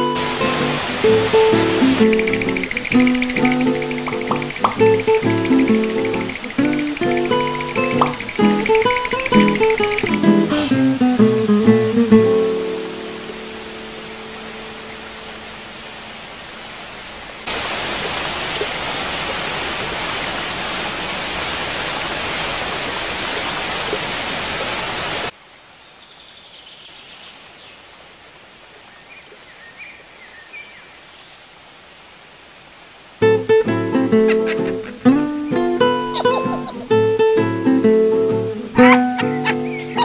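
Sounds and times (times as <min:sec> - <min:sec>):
acoustic guitar music: 0:00.0 - 0:15.0, 0:33.2 - 0:40.0
fountain water rushing: 0:00.0 - 0:25.4, 0:31.4 - 0:40.0
steady hiss: 0:00.0 - 0:40.0
faint high chirps: 0:00.2 - 0:10.6.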